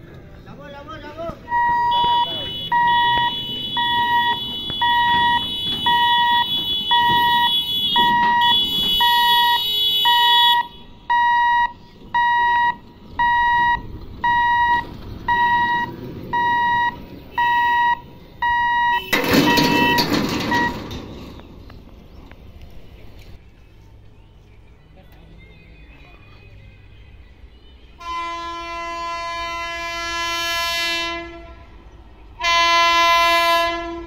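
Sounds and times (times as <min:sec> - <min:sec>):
level-crossing buzzer beeping: 0:01.5 - 0:20.8.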